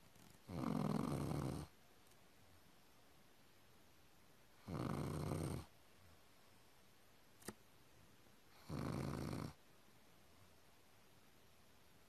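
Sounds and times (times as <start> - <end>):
dog snoring: 0.2 - 1.7, 4.6 - 5.7, 8.5 - 9.6.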